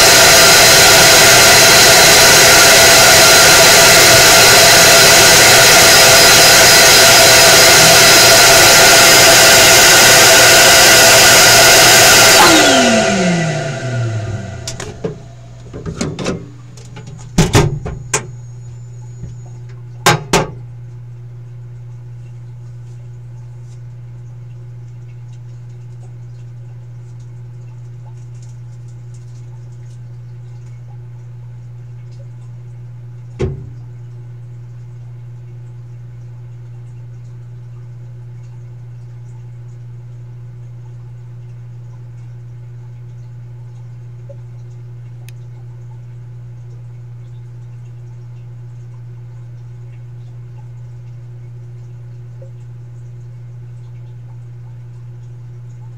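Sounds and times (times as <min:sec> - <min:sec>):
laser cutter humming: 0:00.0 - 0:20.2
sharp knocks and clatters: 0:14.7 - 0:18.3, 0:20.1 - 0:20.6.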